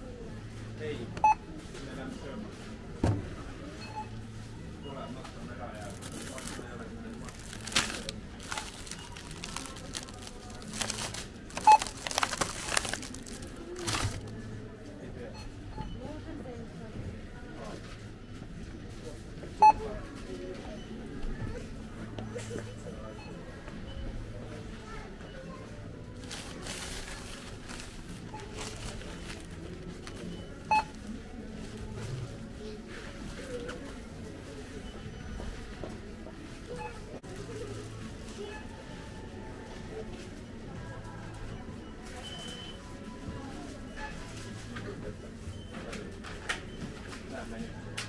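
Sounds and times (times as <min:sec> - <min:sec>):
self-checkout machine beep: 0:00.6 - 0:02.6, 0:03.3 - 0:18.0, 0:19.1 - 0:48.0
plastic bag crinkling: 0:05.8 - 0:14.4, 0:26.2 - 0:30.2.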